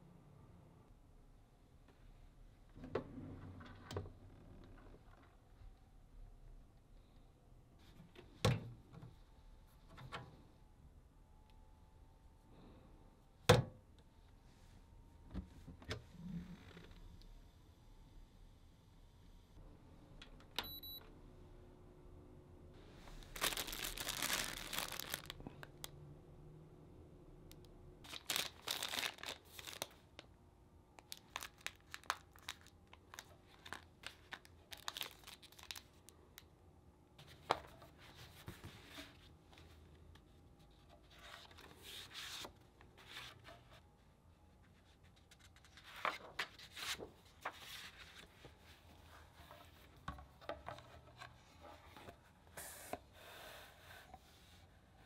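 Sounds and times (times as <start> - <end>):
paper packets crinkling: 23.1 - 25.6, 28.1 - 30.2, 31.0 - 36.1
paper pages turning: 45.0 - 49.6.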